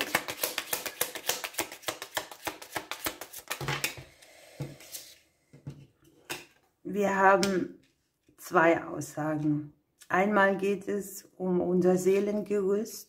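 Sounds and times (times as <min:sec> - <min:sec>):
cards being shuffled: 0:00.0 - 0:04.0.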